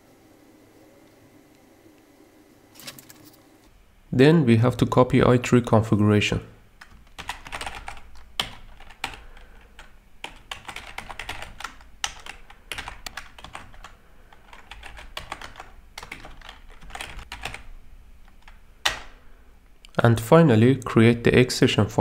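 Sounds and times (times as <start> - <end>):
typing on a computer keyboard: 6.8 - 17.7.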